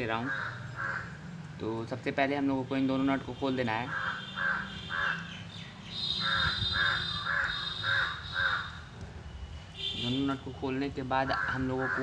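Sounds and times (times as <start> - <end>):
crow cawing: 0.1 - 1.3, 3.8 - 5.4, 6.0 - 8.9, 11.3 - 12.0.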